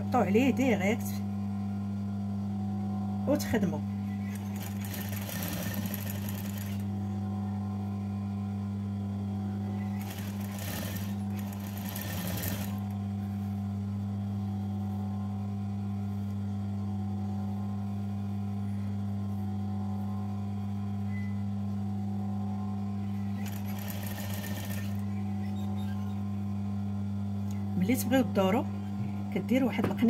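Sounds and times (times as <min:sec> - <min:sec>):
electric motor hum: 0:03.9 - 0:15.1, 0:22.1 - 0:27.6
sewing machine stitching: 0:04.3 - 0:06.8, 0:09.9 - 0:12.9, 0:23.4 - 0:25.0.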